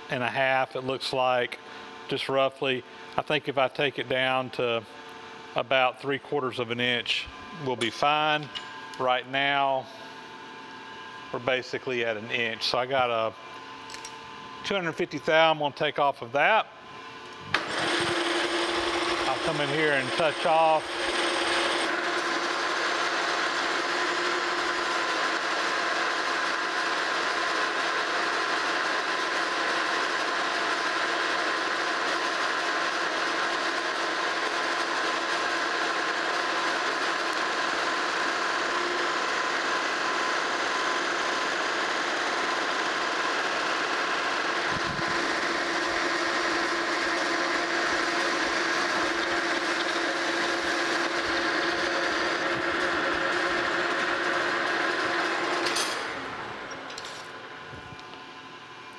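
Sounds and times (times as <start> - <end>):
metal lathe running: 17.5 - 57.2.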